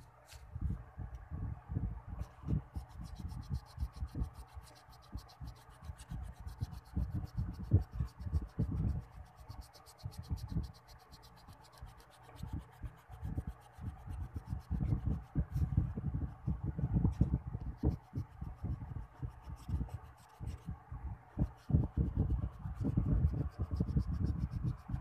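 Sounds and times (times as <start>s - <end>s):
eraser scrubbing on paper: 2.6s - 15.2s.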